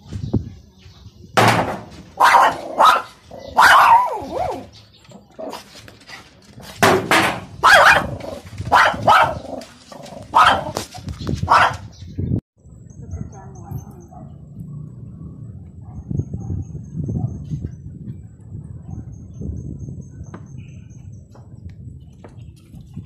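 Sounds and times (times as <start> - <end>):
dog barking: 2.2 - 4.6, 7.6 - 9.5, 10.3 - 10.8, 11.5 - 11.9, 13.6 - 14.4, 15.8 - 17.4.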